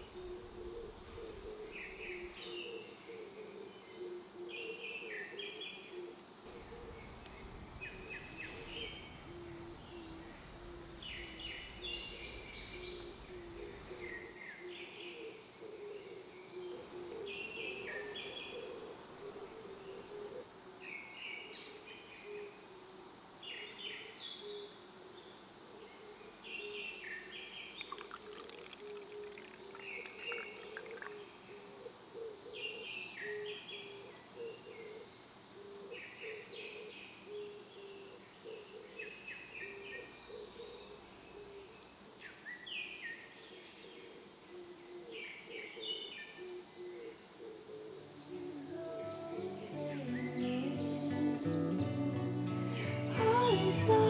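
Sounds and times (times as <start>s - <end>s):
birds chirping: 0.0s - 3.1s, 6.5s - 16.0s, 27.3s - 31.7s
low bird call: 6.5s - 15.2s, 27.6s - 35.0s.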